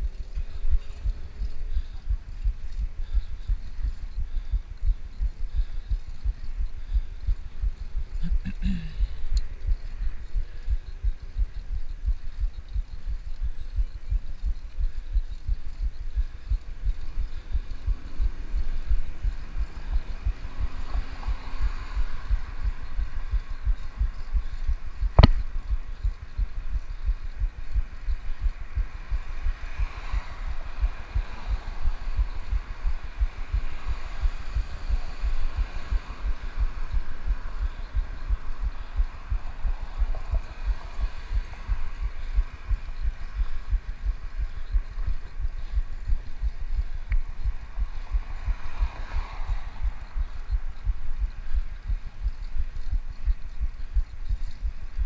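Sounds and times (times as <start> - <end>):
wind buffeting microphone: 9.0 - 55.0
sharp knock: 25.2 - 25.4.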